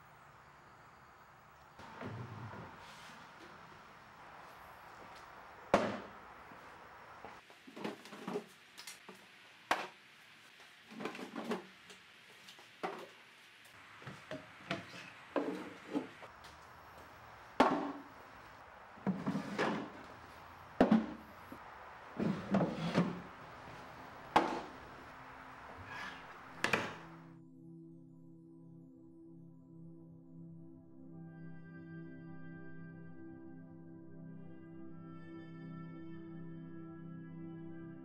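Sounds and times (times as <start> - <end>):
drawers sliding: 1.8 - 3.8, 14.1 - 16.3, 19.0 - 20.2, 22.2 - 27.2
wooden drawers knocking: 5.7 - 6.1, 17.6 - 18.1, 19.0 - 20.0, 20.8 - 21.3, 22.2 - 23.6, 24.2 - 24.9, 25.9 - 27.1.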